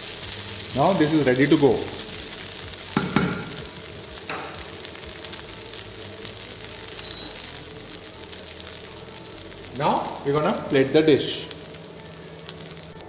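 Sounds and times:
noodles sizzling in a frying pan: 0:00.0 - 0:13.0
wooden spatula knocking on pan: 0:03.0 - 0:03.6, 0:04.3 - 0:04.6.

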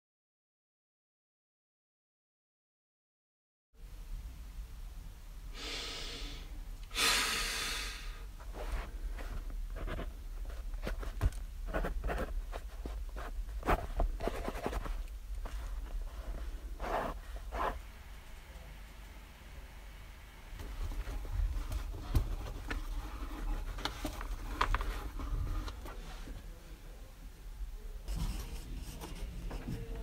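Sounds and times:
steady low hum: 0:03.8 - 0:30.0
heavy breaths out: 0:05.6 - 0:08.3
pen scratching on paper: 0:11.7 - 0:15.0.

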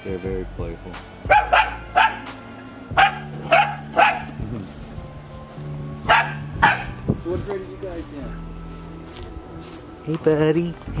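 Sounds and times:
puppy yipping: 0:01.3 - 0:02.3, 0:03.0 - 0:04.4, 0:06.1 - 0:07.0.

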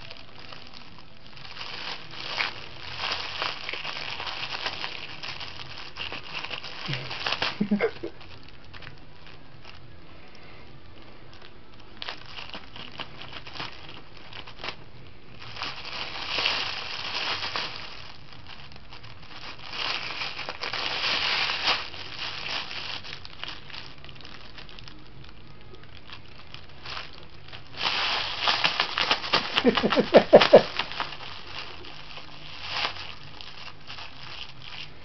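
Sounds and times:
bag crinkling and crackling: 0:00.0 - 0:35.0.

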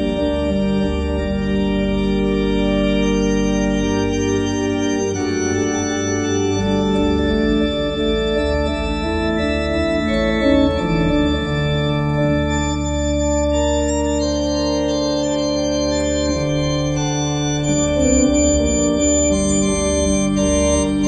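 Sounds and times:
deep organ bass note: 0:00.0 - 0:21.0
organ playing slow chords: 0:00.0 - 0:21.0.

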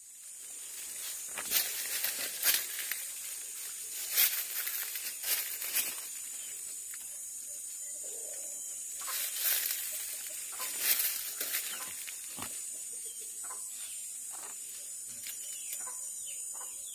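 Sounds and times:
steady high hiss: 0:00.0 - 0:16.9
leaves rustling against phone: 0:00.1 - 0:07.0, 0:09.0 - 0:12.6.

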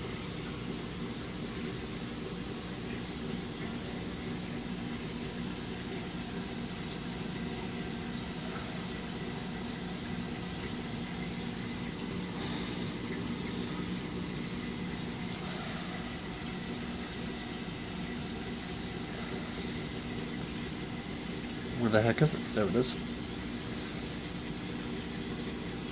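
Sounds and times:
low even hum: 0:00.0 - 0:25.9
running water rushing: 0:00.0 - 0:25.9.

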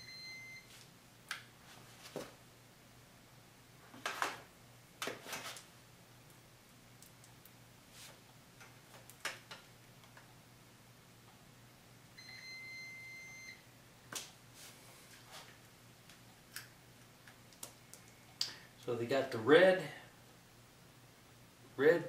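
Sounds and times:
high electronic beep: 0:00.0 - 0:00.6
faint steady hum: 0:00.0 - 0:22.0.

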